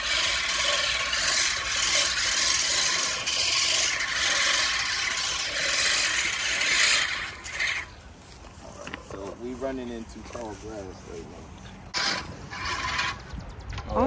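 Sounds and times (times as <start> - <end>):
reel mower cutting grass: 0.0 - 8.0, 11.9 - 13.3.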